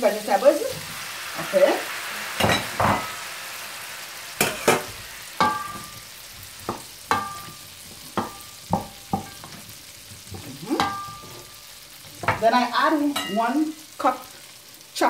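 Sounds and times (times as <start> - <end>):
vegetables sizzling in a pan: 0.0 - 15.0
wooden spoon knocking on pan: 4.4 - 6.0, 6.6 - 11.5, 12.1 - 12.6.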